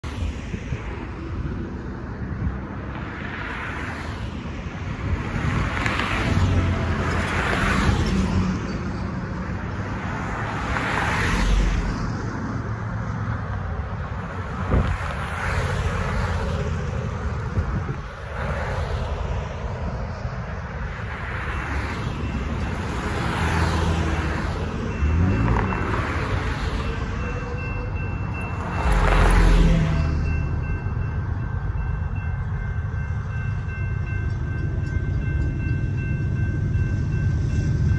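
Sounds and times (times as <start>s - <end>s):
road traffic passing: 0.0s - 37.9s
railroad crossing signal ringing: 6.3s - 10.5s, 19.9s - 37.9s.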